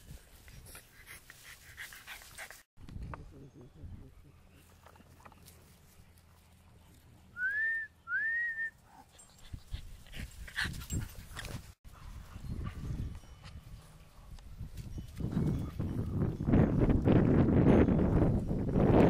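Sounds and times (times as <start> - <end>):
person whistling: 7.4 - 8.8.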